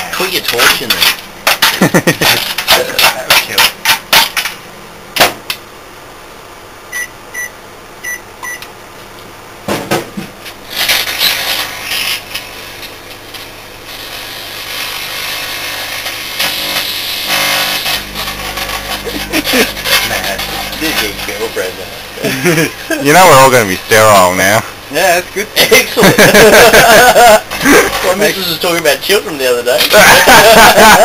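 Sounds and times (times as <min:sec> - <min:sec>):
microwave oven running: 0:00.0 - 0:31.0
crackling and hissing arcing: 0:00.1 - 0:04.6, 0:10.6 - 0:30.3
microwave keypad beeping: 0:06.9 - 0:08.7
low hum: 0:17.3 - 0:23.0.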